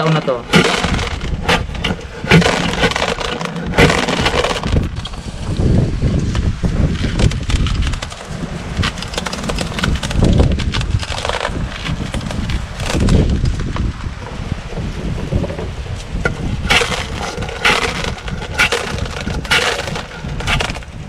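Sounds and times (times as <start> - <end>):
corn cobs scraping on sheller: 0.0 - 14.4, 15.3 - 21.0
kernels rattling into plastic basin: 0.5 - 4.9, 16.7 - 20.9.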